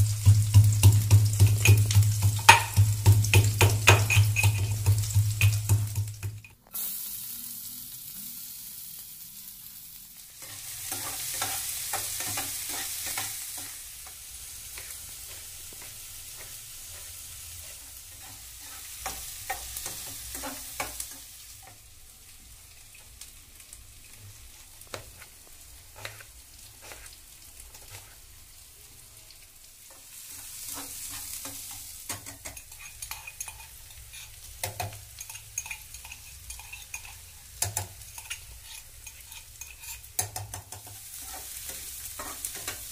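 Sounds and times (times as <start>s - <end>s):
vegetables sizzling in oil: 0.0s - 42.9s
pestle pounding in metal mortar: 0.3s - 6.4s
spatula scraping a pan: 0.8s - 5.9s, 10.4s - 21.8s, 24.0s - 28.3s, 29.9s - 42.9s.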